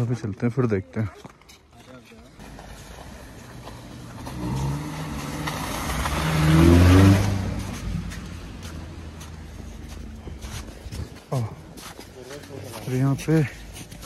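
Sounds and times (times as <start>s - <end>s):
car driving past accelerating: 2.6s - 9.3s.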